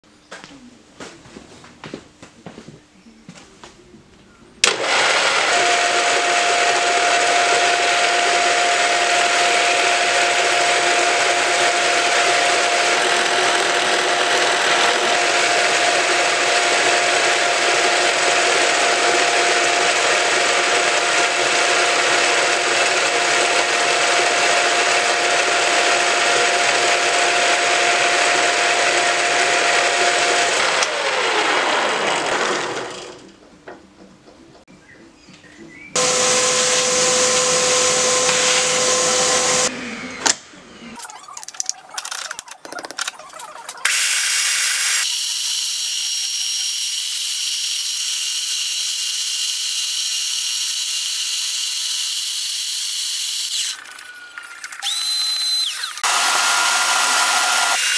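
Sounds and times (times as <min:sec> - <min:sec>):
drill press boring into wood: 0:04.6 - 0:33.2, 0:43.8 - 0:57.9.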